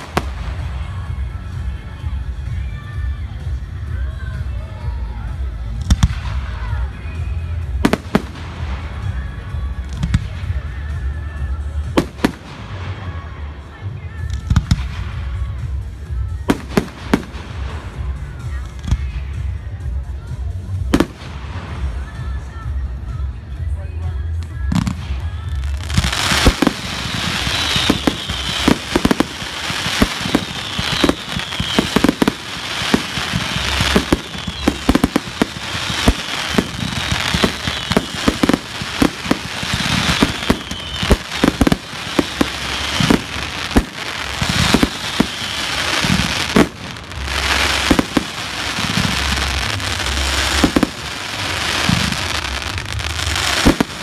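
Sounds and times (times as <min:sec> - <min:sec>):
fireworks crackling: 0:00.0 - 0:54.0
fireworks bangs: 0:24.7 - 0:54.0.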